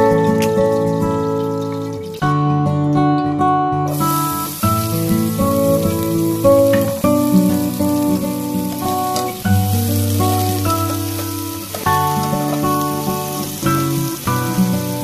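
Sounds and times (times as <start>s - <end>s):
instrumental music of held notes: 0.0s - 15.0s
onions sizzling in oil: 3.9s - 15.0s.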